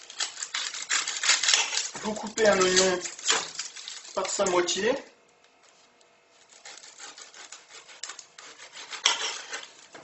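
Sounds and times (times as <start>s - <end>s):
knife cutting onion: 6.5s - 10.0s.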